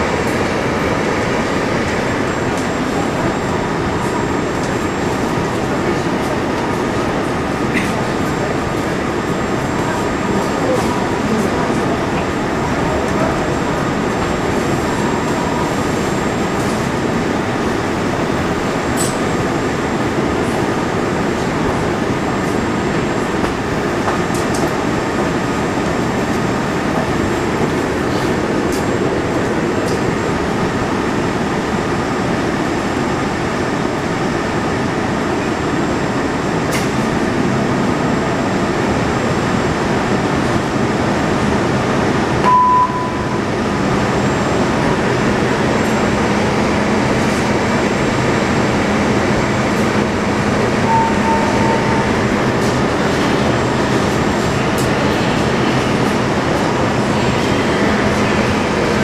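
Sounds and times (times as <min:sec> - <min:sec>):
metro car running noise: 0:00.0 - 0:59.0
short electronic beep: 0:42.4 - 0:43.5, 0:50.8 - 0:52.1.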